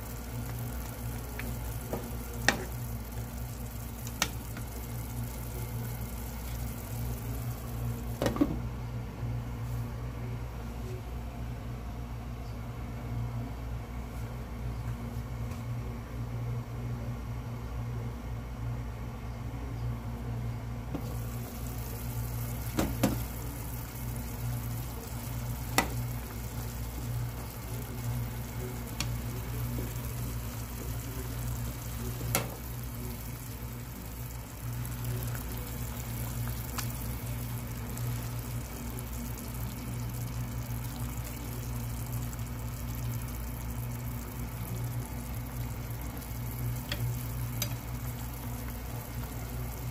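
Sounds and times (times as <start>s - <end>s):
soup simmering in a pot: 0.0s - 8.7s, 21.0s - 49.9s
steady low hum: 0.0s - 49.9s.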